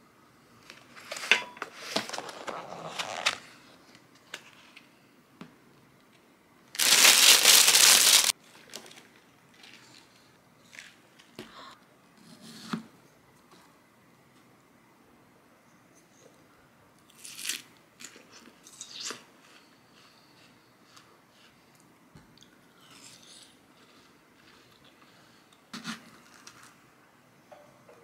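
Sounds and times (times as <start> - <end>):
plastic rustle: 6.7 - 10.1.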